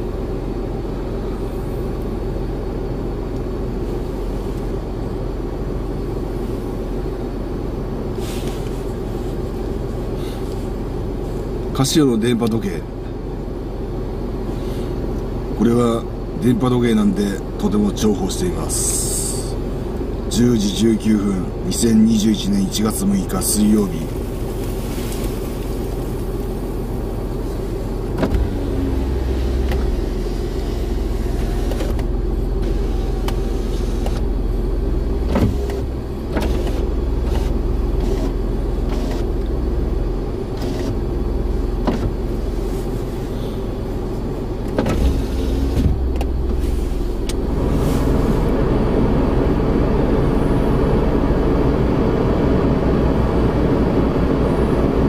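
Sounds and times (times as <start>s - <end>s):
car engine idling with heater fan: 0.0s - 55.0s
loud steady noise: 15.0s - 55.0s.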